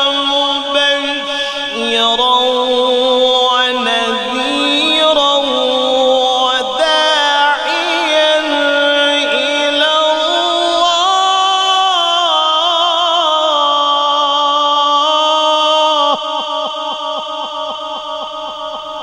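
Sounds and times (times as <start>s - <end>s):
man reciting melodically: 0.0s - 19.0s.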